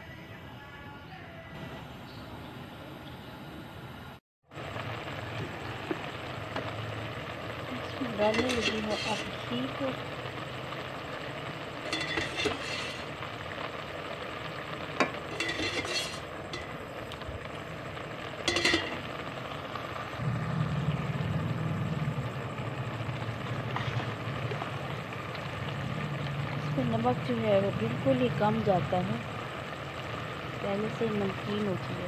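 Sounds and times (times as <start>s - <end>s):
low hum: 1.6s - 31.5s
sizzling and bubbling in a pot: 4.4s - 32.0s
ladle scraping and clinking on pot: 8.2s - 9.5s, 11.8s - 13.2s, 15.0s - 16.8s, 18.4s - 19.1s.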